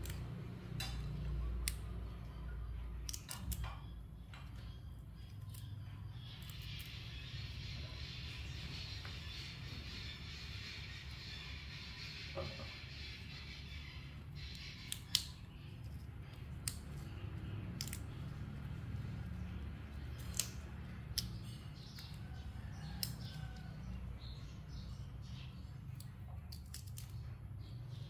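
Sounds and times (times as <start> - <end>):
flower stems snapping: 0.0 - 2.2, 2.9 - 3.9, 14.6 - 23.6, 25.9 - 27.3.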